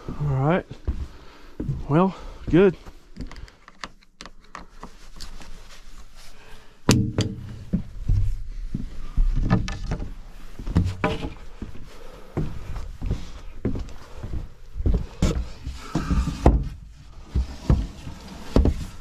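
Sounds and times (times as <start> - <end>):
wooden knocks and thumps: 6.9 - 8.4, 9.2 - 11.4, 14.9 - 19.0.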